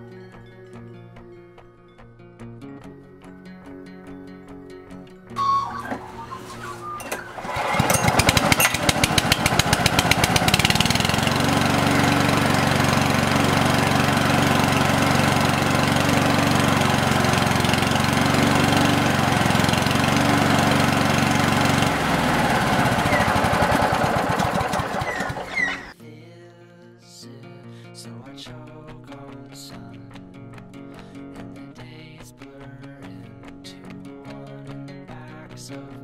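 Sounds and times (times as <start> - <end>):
lawn mower engine running: 5.4 - 26.0.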